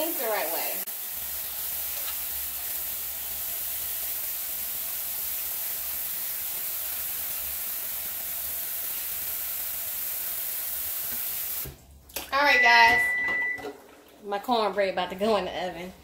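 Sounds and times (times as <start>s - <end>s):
faucet water running into sink: 0.0s - 11.8s.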